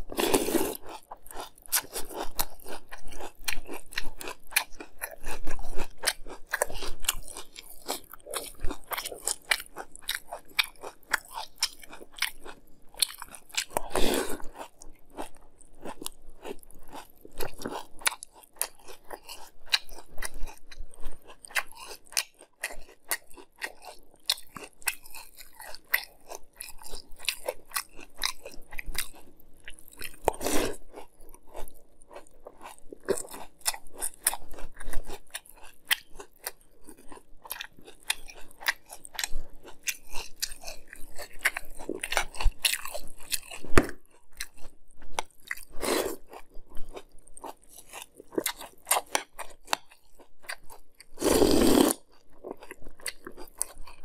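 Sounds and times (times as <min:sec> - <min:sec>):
crunching cereal: 0:51.2 - 0:54.0.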